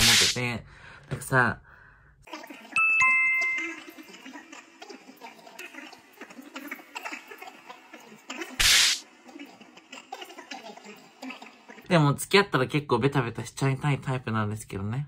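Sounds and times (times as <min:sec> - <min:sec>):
bright chime ding: 0:02.8 - 0:03.8.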